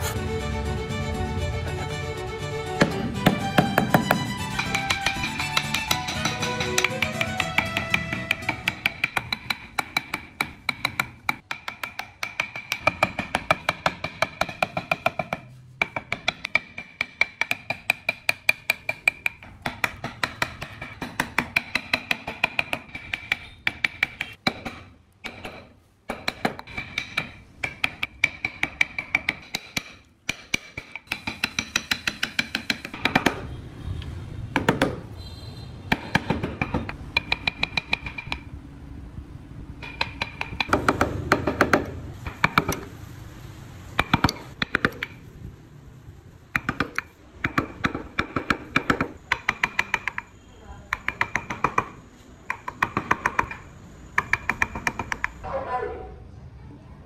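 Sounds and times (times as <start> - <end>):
chisel tapping into wood: 2.8 - 33.4, 35.9 - 38.5, 39.8 - 42.9, 44.0 - 45.2, 46.5 - 55.4.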